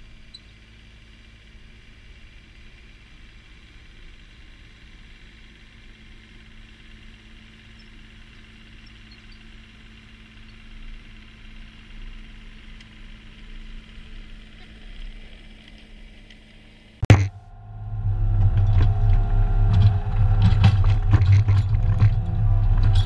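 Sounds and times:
excavator diesel engine running: 17.0 - 23.0.

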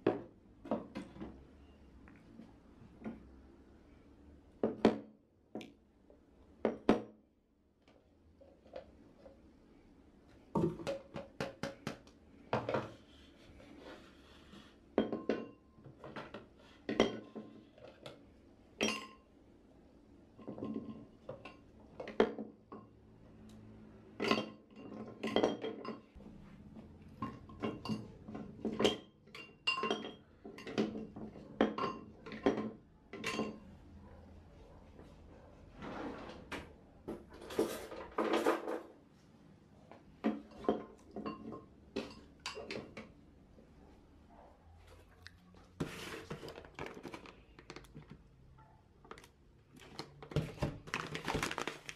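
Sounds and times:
kitchen utensils clinking: 27.2 - 33.6, 40.4 - 43.0.

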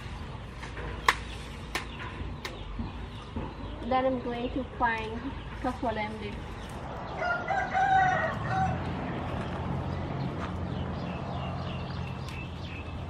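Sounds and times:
rooster crowing: 7.1 - 9.0.

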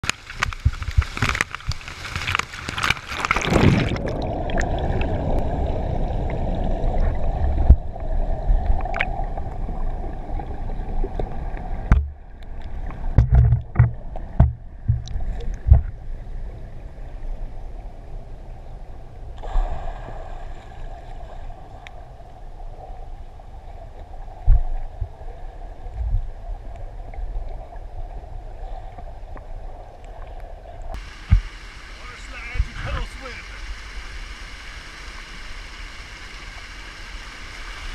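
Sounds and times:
muffled underwater rushing: 0.0 - 37.9
underwater knocks and thumps: 11.1 - 16.1, 24.4 - 25.2, 31.2 - 31.5
waterfall splashing: 31.0 - 37.9.

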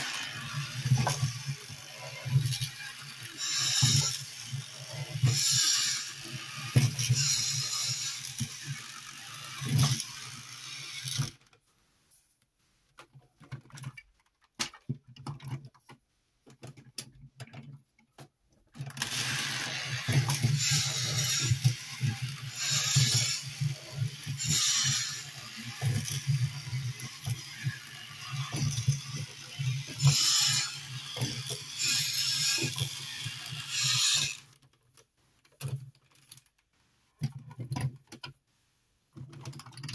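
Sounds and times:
plastic gear rattle: 0.0 - 11.6, 13.0 - 38.4, 39.1 - 39.9
toy motor humming and clicking: 0.0 - 11.6, 18.8 - 34.7.

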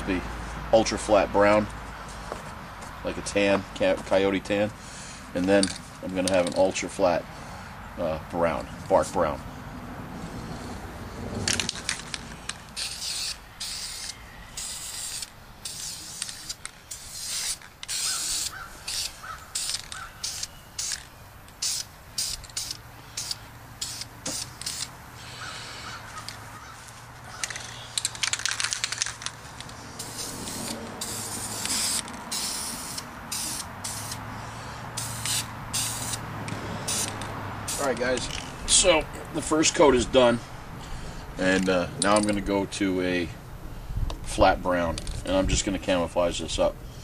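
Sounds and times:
spray paint can hissing: 12.4 - 24.9, 30.0 - 34.2, 35.0 - 36.2, 36.8 - 38.4.

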